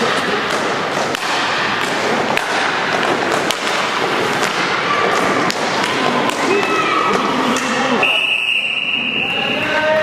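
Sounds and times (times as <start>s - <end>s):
skate wheels rolling on floor: 0.0s - 7.7s
hockey sticks clacking: 0.0s - 8.1s.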